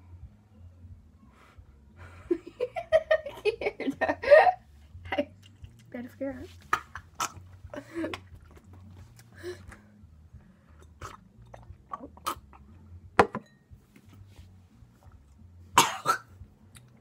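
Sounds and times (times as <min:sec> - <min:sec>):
chewing jelly beans: 0:10.8 - 0:12.8
glass set down on table: 0:13.2 - 0:13.6.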